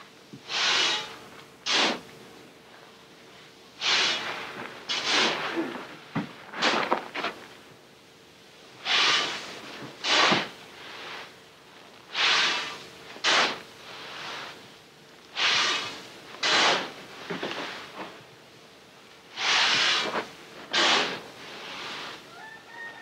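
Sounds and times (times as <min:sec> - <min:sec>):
shovel scraping grain: 0:00.4 - 0:02.0, 0:03.8 - 0:05.8, 0:06.5 - 0:07.4, 0:08.8 - 0:11.4, 0:12.1 - 0:14.7, 0:15.4 - 0:18.2, 0:19.3 - 0:22.3.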